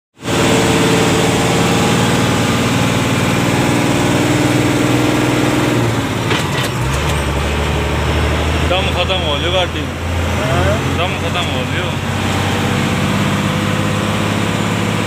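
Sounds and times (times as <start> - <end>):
diesel engine running: 0.2 - 15.0.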